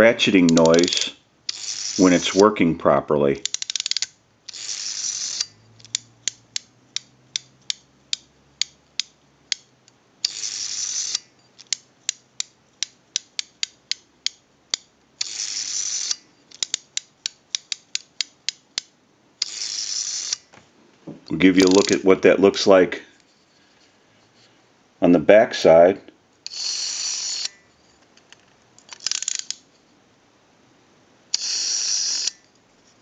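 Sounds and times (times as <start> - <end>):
rotary dial whirring back: 0.3 - 2.6, 3.4 - 8.7, 10.2 - 11.8, 15.2 - 16.9, 19.4 - 20.5, 21.5 - 22.1, 26.4 - 27.6, 28.9 - 29.6, 31.3 - 32.5
rotary dial ratchet clicks: 0.4 - 2.4, 3.4 - 20.4, 21.6 - 22.0, 28.9 - 29.6.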